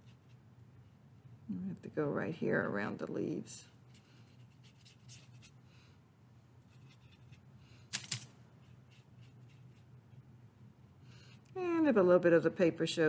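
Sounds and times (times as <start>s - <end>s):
brush strokes on paper: 3.7s - 5.6s, 8.6s - 10.1s.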